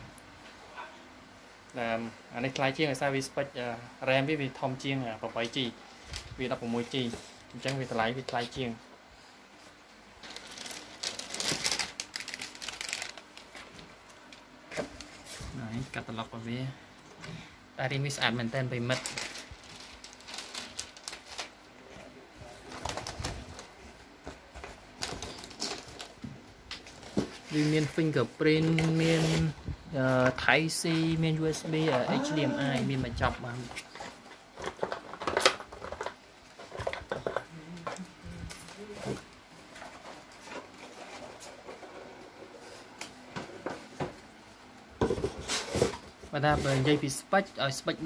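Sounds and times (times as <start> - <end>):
cardboard packaging rustling: 10.2 - 15.5, 18.7 - 21.6, 22.4 - 37.4.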